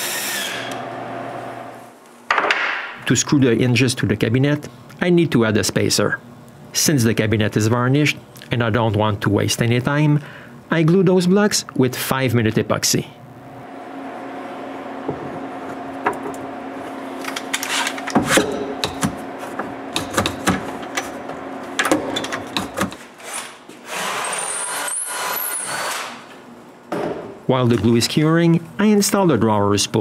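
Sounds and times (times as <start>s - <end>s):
steady low hum: 0.8s - 23.7s.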